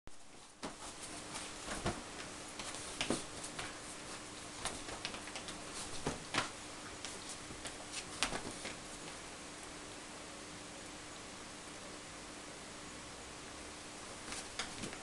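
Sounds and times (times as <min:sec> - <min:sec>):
faint steady hum: 0:00.1 - 0:15.0
dog claws clicking on rug: 0:04.6 - 0:08.8.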